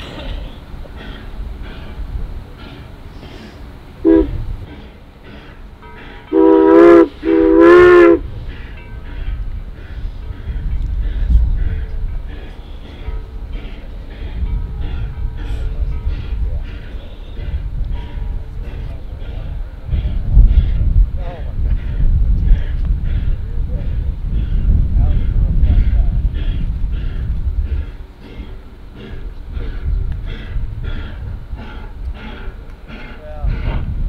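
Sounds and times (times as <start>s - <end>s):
locomotive chuffing exhaust: 0.0s - 34.0s
steam locomotive whistle: 4.0s - 4.4s, 6.3s - 8.3s.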